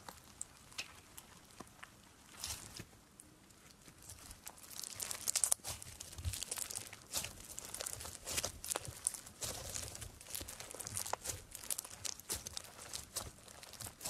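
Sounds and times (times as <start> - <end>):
slime crackling and popping: 3.8 - 14.0.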